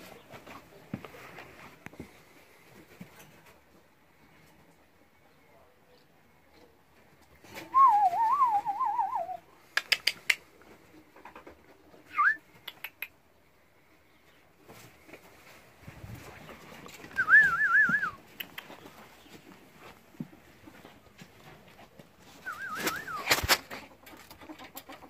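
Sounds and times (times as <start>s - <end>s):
sharp clicks: 9.7s - 10.4s.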